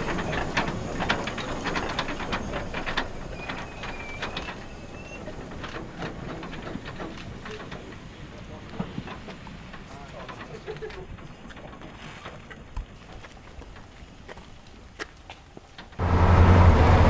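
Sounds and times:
steam locomotive hissing: 0.0s - 11.5s.

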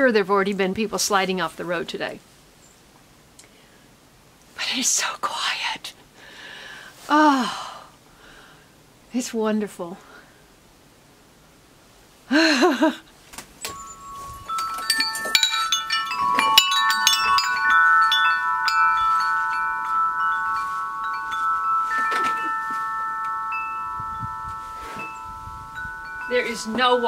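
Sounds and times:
wind chimes ringing: 13.6s - 27.0s.

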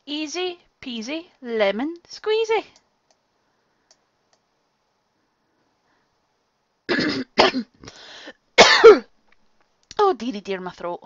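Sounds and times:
person coughing: 6.9s - 7.9s, 8.6s - 9.1s.

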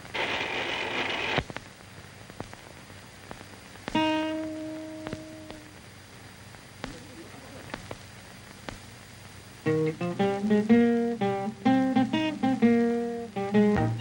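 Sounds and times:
film hiss: 0.0s - 14.0s
plucked string instrument tune: 4.0s - 5.7s, 9.7s - 14.0s.

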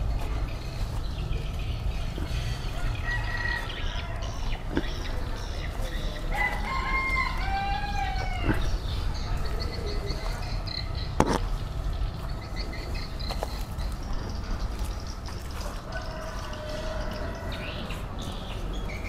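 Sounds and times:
rooster crowing: 2.3s - 4.6s, 6.3s - 8.7s, 15.8s - 18.0s.

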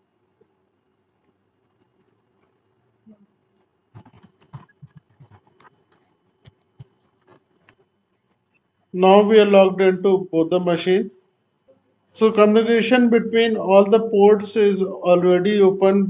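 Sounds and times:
faint computer keyboard typing: 0.4s - 8.9s.

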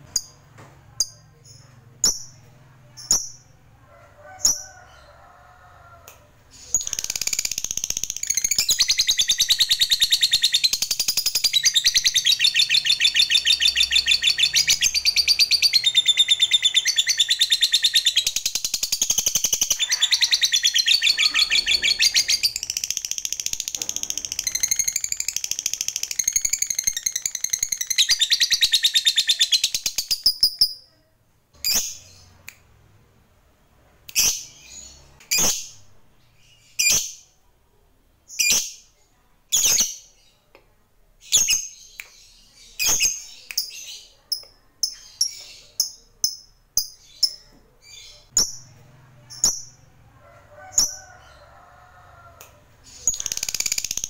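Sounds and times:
lovebird chattering trill: 6.6s - 30.6s.

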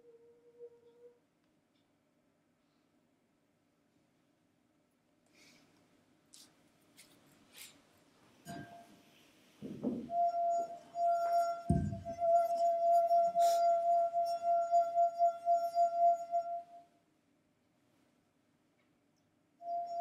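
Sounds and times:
wine glass ringing: 8.5s - 9.0s, 10.1s - 16.6s.

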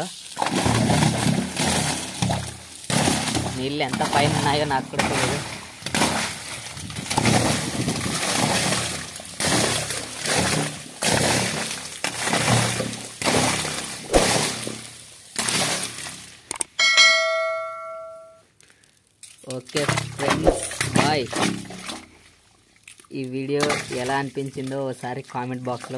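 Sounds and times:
soil rattling down a pipe: 0.0s - 17.5s
bell-like ding chime: 16.8s - 18.4s.

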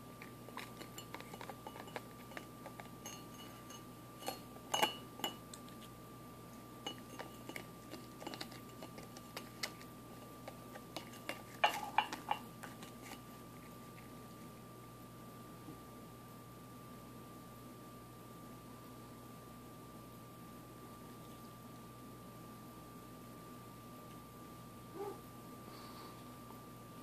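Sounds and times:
cat crunching cracker: 7.6s - 11.6s.

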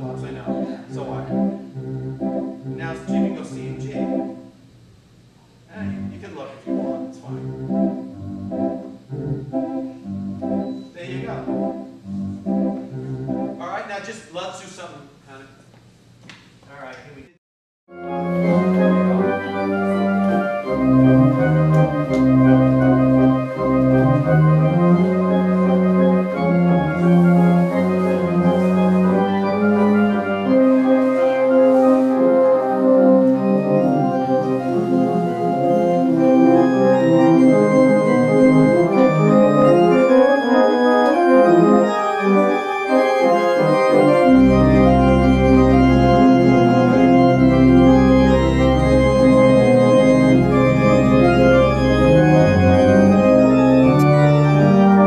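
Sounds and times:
organ playing chords: 0.0s - 14.4s, 17.9s - 55.0s
deep pedal bass: 18.3s - 30.8s.

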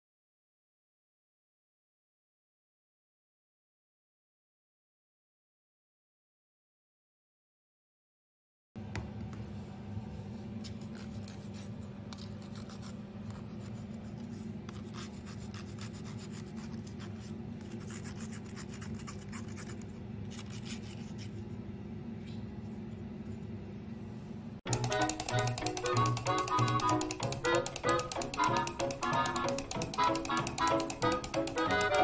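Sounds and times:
cat claws scratching a nail file: 10.6s - 21.4s, 24.7s - 32.0s.

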